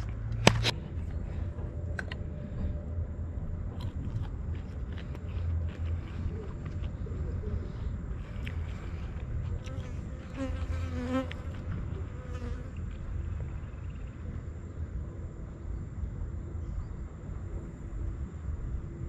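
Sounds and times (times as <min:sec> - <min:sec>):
insect buzzing: 0:09.7 - 0:12.9.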